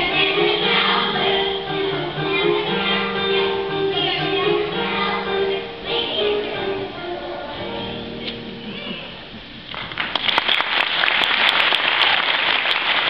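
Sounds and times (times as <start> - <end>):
children's song held notes: 0.0 - 9.4
audience applauding: 9.6 - 13.0.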